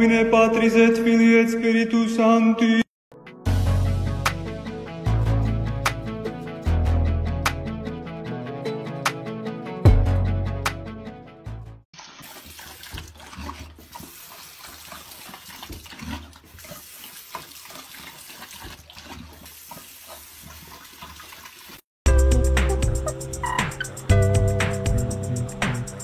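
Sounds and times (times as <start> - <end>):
dog lapping water: 12.0 - 21.8
guitar music: 22.1 - 26.0.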